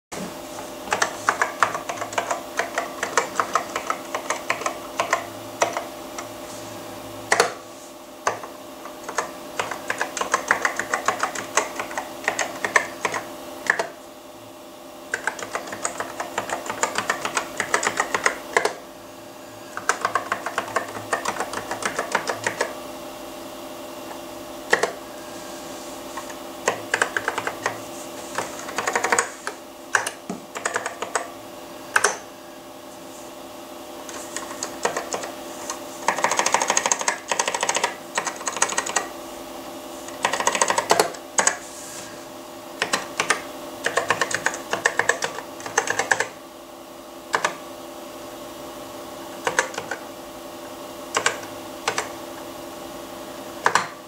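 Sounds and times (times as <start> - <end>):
keyboard keys clicking: 0.9 - 6.3, 7.3 - 7.6, 8.2 - 13.9, 15.1 - 18.8, 19.7 - 22.7, 24.7 - 25.0, 26.2 - 31.3, 34.4 - 39.1, 40.1 - 41.6, 42.8 - 46.3, 47.3 - 47.6, 49.4 - 50.0, 51.1 - 52.1.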